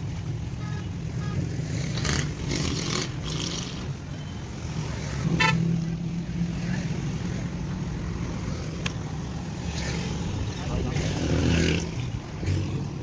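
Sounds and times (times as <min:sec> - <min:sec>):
street traffic hum: 0:00.0 - 0:13.0
car horn toot: 0:05.3 - 0:05.6.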